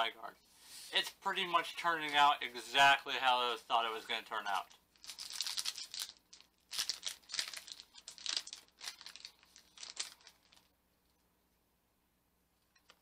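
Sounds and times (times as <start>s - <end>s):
foil wrapper crinkling and tearing: 4.5s - 10.7s.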